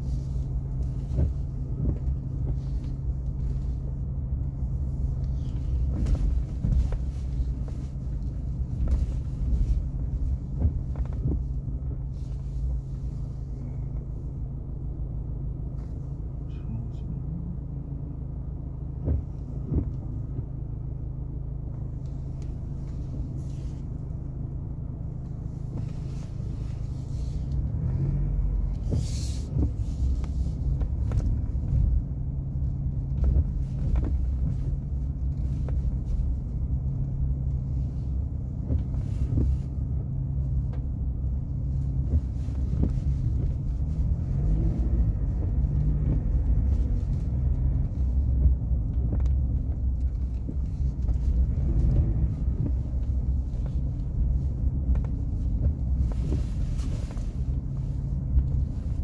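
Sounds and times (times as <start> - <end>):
pickup engine and road rumble: 0.0 - 59.0.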